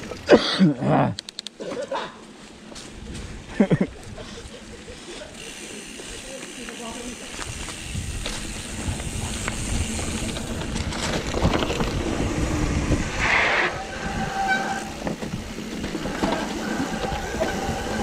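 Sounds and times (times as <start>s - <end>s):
bike rattling: 2.2s - 18.0s
bike tyres rumbling on trail: 2.2s - 18.0s
high squealing tone: 13.1s - 15.1s.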